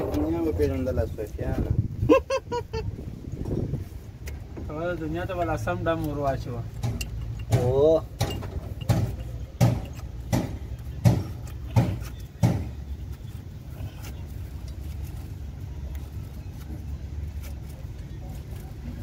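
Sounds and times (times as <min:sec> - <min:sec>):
metal knocks on steel: 0:06.8 - 0:12.7.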